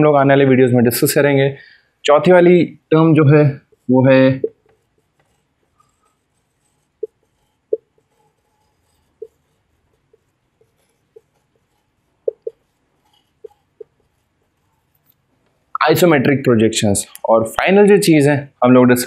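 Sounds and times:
marker squeaking on whiteboard: 3.6s - 15.5s.

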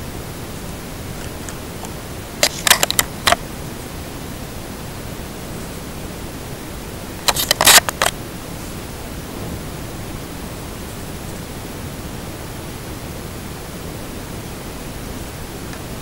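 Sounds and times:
camera microphone hiss: 0.0s - 16.0s
crackly handling noise: 1.1s - 3.4s, 7.2s - 8.2s.

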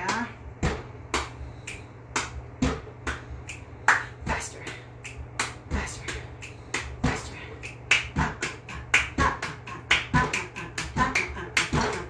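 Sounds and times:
sticks thudding on exercise ball: 0.0s - 1.4s, 2.1s - 3.2s.

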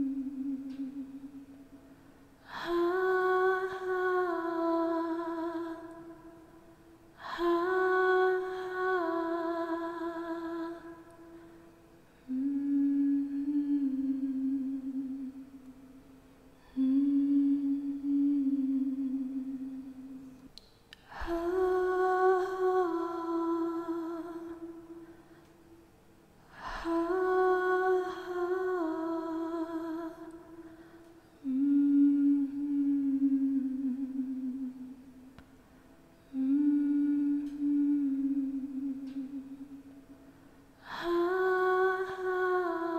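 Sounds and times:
woman humming: 12.3s - 15.6s, 16.6s - 20.3s, 31.4s - 35.2s, 36.3s - 39.8s.

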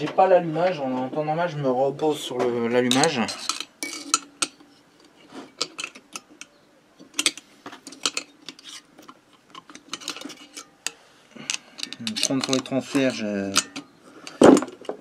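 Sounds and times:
metallic clicks of tools on metal: 2.9s - 15.0s.

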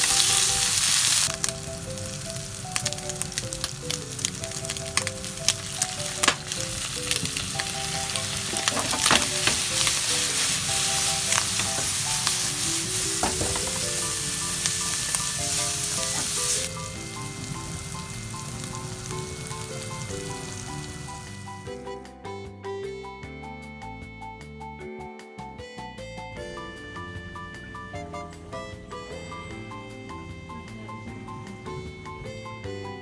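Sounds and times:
food sizzling in a frying pan: 0.0s - 21.8s
light background music: 0.0s - 33.0s.

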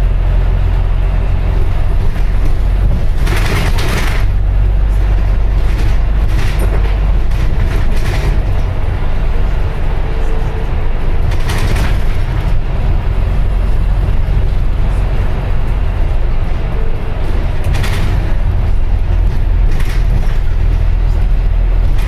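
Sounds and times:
bus low rumble: 0.0s - 22.0s.

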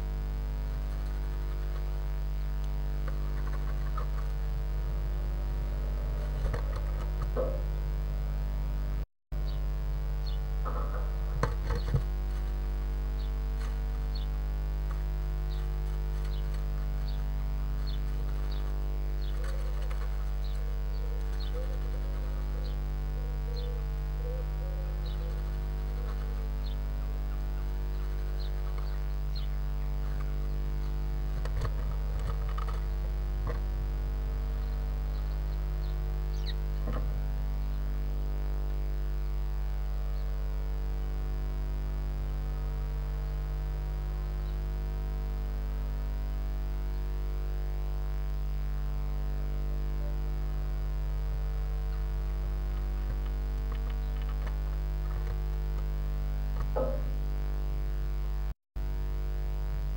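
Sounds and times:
electrical mains hum: 0.0s - 59.9s
bird scratching and rustling: 0.6s - 4.5s, 5.9s - 7.6s, 10.7s - 22.8s, 24.9s - 33.8s, 51.9s - 55.9s
faint high bird peeps: 17.8s - 26.8s.

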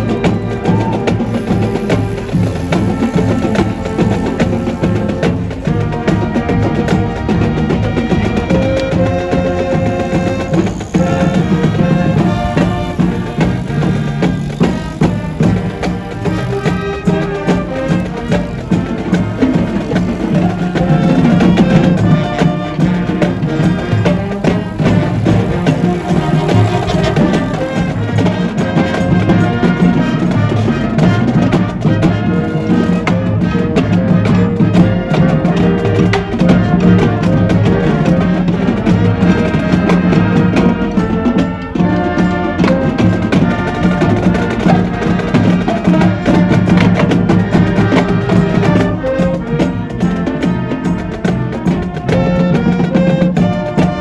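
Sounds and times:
pitched melody: 0.0s - 29.7s
drums and percussion beat: 0.0s - 54.0s.

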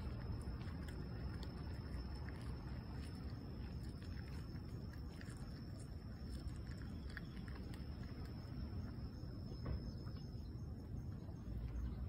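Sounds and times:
wet clicks: 0.0s - 8.7s
cat chewing: 0.0s - 9.5s
low outdoor rumble: 0.0s - 12.0s.

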